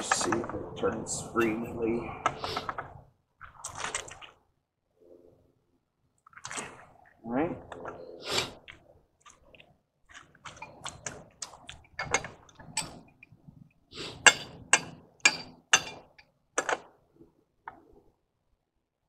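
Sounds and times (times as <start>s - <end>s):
pipe wrench clicking and scraping: 12.0s - 13.4s, 14.2s - 16.3s.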